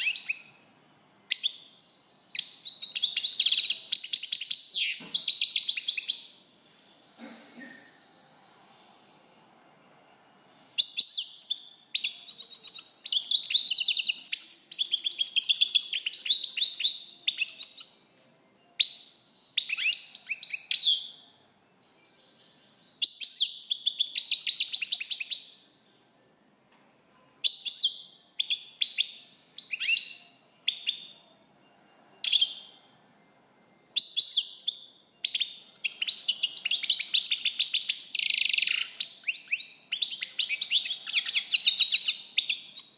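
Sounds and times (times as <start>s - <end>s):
goldfinch twittering song: 18.8s - 21.2s, 34.0s - 42.9s.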